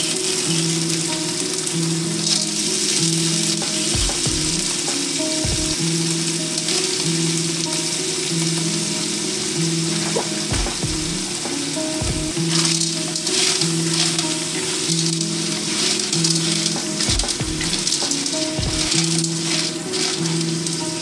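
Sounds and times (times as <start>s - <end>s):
food sizzling in wok: 0.0s - 21.0s
dull stirring knocks: 3.6s - 5.8s, 10.0s - 14.1s, 15.0s - 20.5s.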